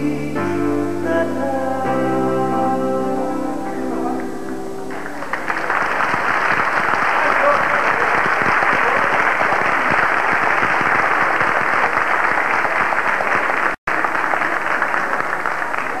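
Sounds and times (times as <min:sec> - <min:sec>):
audience applauding: 0:04.9 - 0:16.0.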